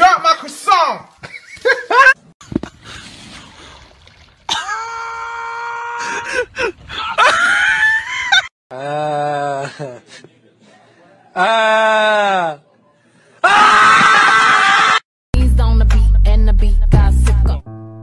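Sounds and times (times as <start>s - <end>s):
people yelling and screaming: 4.5s - 6.4s, 13.4s - 15.0s.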